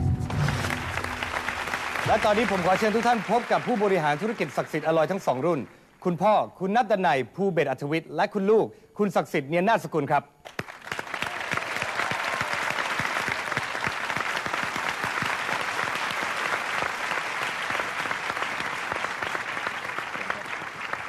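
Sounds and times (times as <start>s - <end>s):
audience applauding: 0.0s - 5.7s, 10.5s - 21.0s.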